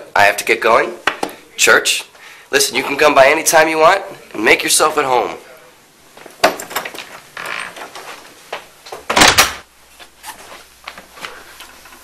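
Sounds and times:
door opening: 6.4s - 8.1s, 8.9s - 9.6s
door shutting thud: 9.0s - 9.6s.

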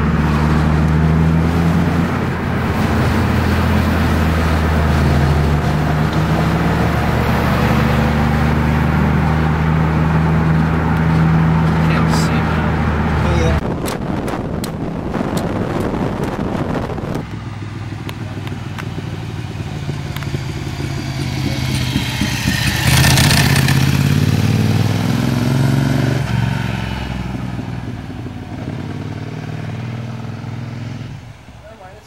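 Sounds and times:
motorcycle passing by: 0.0s - 13.6s, 16.7s - 32.0s
wind rush while riding: 8.6s - 25.3s.

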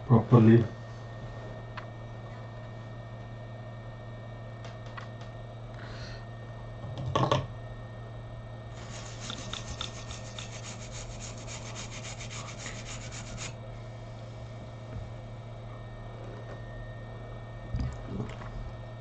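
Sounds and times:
rapid scrubbing on circuit board: 8.8s - 13.6s.

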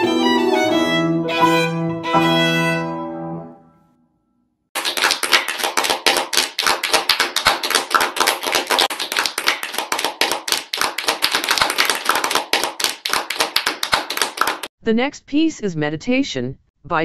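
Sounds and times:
crowd applauding: 4.8s - 14.7s.

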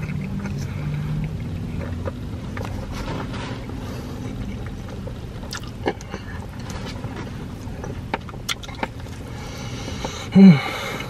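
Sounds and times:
car interior hum: 0.0s - 11.0s
wet chewing smacks and clicks: 4.4s - 6.2s, 7.6s - 9.3s.

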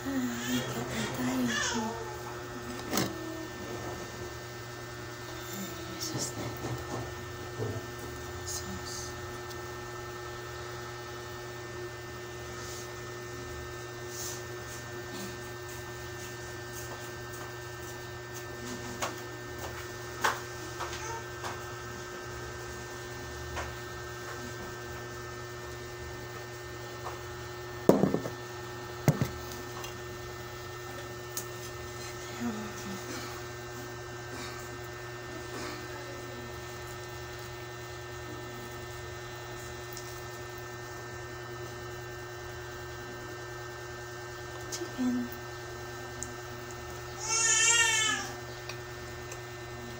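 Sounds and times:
steady electrical hum: 0.0s - 49.9s
plate and food knocks: 27.9s - 28.4s.

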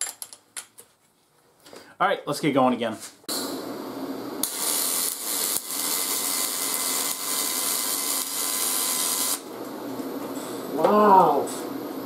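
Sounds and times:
welding arc crackling hiss: 3.3s - 9.6s.

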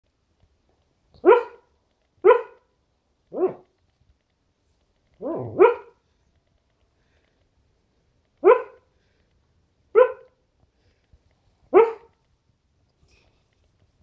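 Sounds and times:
dog barking in its sleep: 3.3s - 3.7s, 5.2s - 6.0s, 8.4s - 8.9s, 11.7s - 12.2s.

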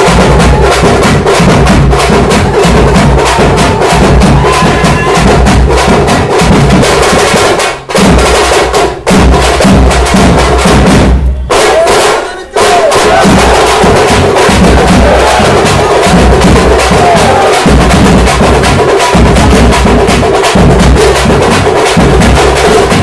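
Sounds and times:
loud rapid drumming: 0.0s - 23.0s
crowd voices shouting: 2.2s - 5.5s, 11.5s - 17.9s.

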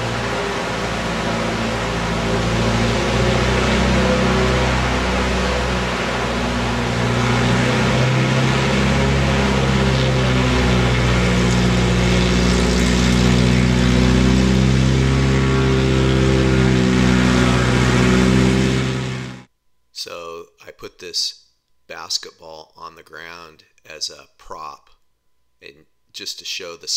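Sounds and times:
propeller plane engine running: 0.0s - 19.5s.

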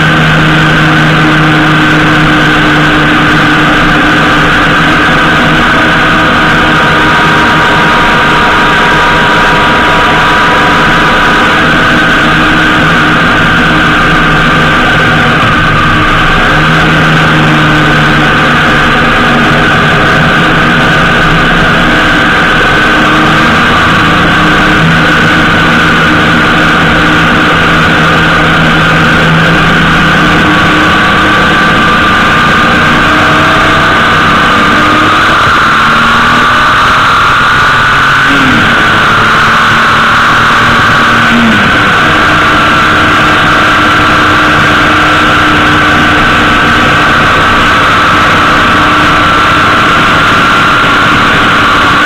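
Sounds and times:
motorcycle engine running: 0.0s - 52.0s
wind rushing: 3.6s - 34.7s.

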